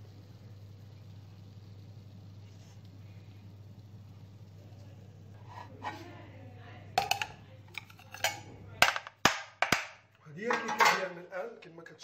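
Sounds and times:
metal tin knocking on plate: 7.0s - 11.1s.

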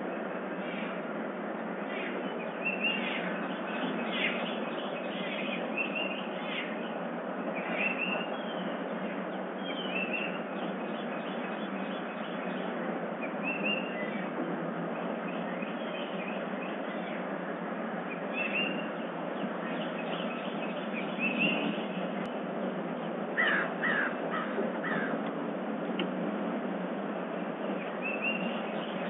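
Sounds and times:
steady background hiss: 0.0s - 29.0s.

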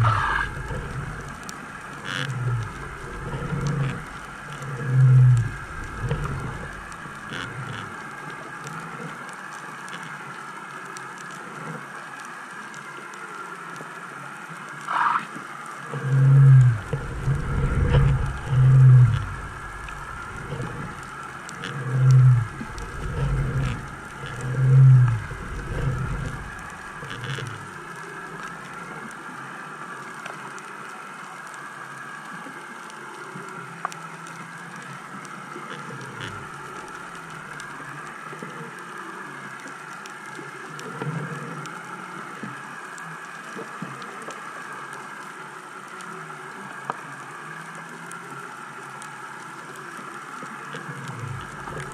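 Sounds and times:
low pulsing underwater thumps: 0.0s - 1.4s, 2.3s - 7.0s, 16.0s - 27.8s
steady underwater hum: 0.0s - 51.9s
faint hiss: 9.7s - 51.9s.

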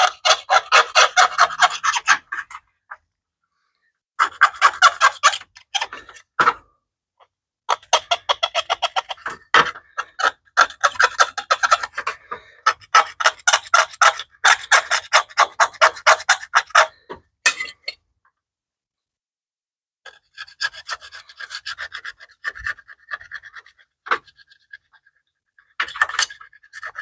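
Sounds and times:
hand tool scraping grime off metal: 20.1s - 25.1s.

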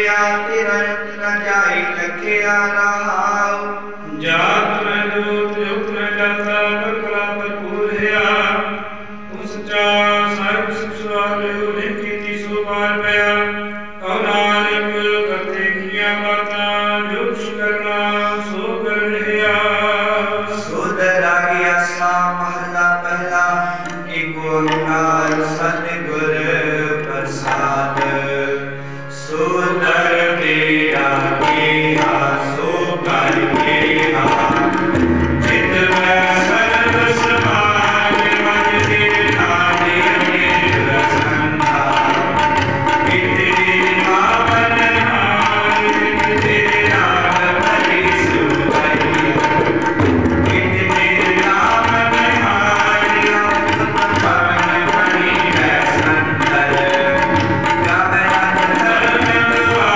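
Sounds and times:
harmonium: 0.0s - 59.9s
tabla beat: 4.2s - 59.9s
person singing: 14.0s - 28.4s.

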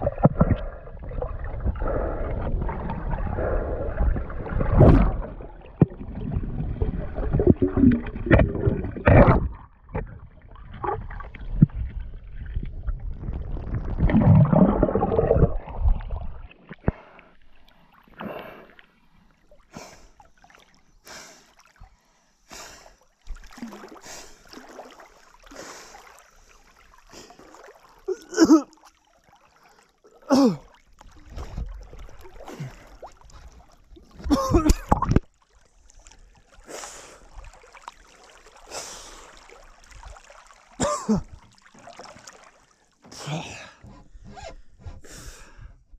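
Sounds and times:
muffled underwater bubbling and rumbling: 0.0s - 17.1s, 31.0s - 35.3s
water splashes and drips: 0.0s - 44.0s.

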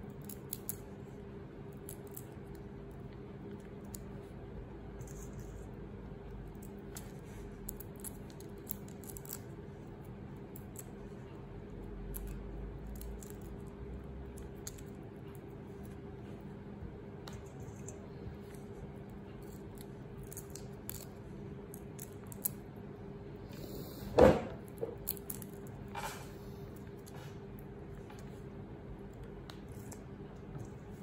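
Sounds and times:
steady low hum: 0.0s - 31.0s
shrimp shells cracking: 7.7s - 9.5s.

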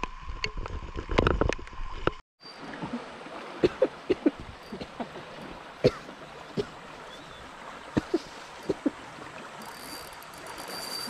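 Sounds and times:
river running over rocks: 2.5s - 11.0s.

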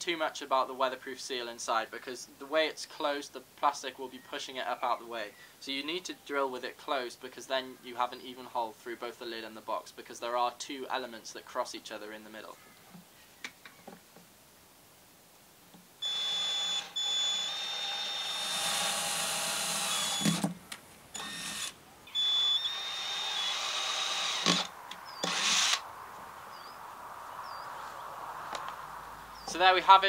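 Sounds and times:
cordless drill whining through plastic: 16.0s - 25.8s.

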